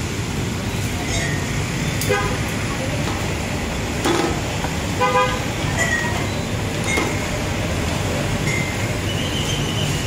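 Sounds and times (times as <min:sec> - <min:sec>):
street traffic: 0:00.0 - 0:10.0
vehicle horn toot: 0:05.0 - 0:05.4.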